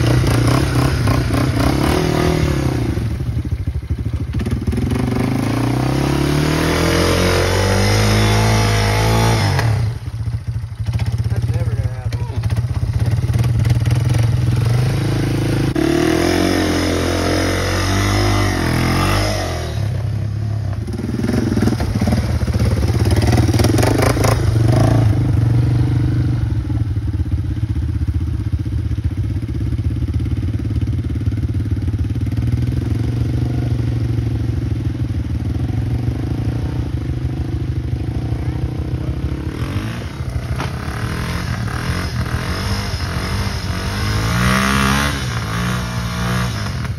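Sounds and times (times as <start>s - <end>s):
quad bike engine revving: 0.0s - 46.9s.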